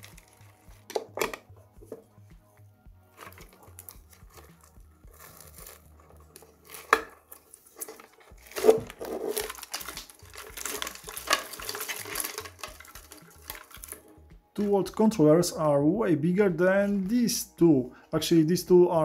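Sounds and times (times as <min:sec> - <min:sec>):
wires and plastic connectors clattering: 0:00.0 - 0:02.1, 0:03.1 - 0:15.0.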